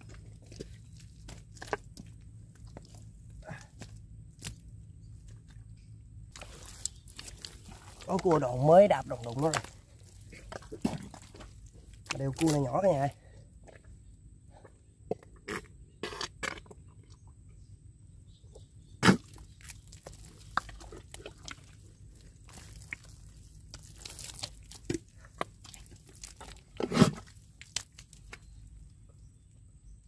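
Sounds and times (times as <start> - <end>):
wet mud squelching and sucking: 6.3 - 14.7, 19.0 - 28.5.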